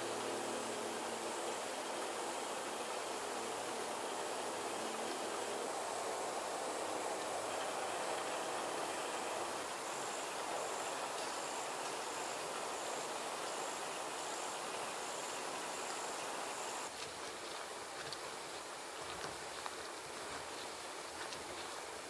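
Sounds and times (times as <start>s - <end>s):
high-pitched pulsing insect call: 0.0s - 17.0s.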